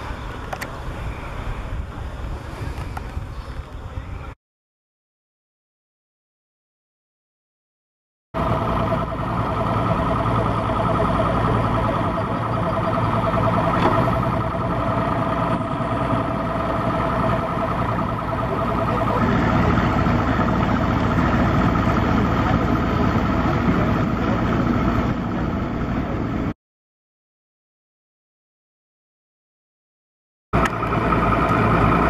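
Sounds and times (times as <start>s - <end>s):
water and wind noise: 0.0s - 4.4s, 8.4s - 26.5s
motorboat engine running: 8.4s - 26.5s, 30.6s - 32.0s.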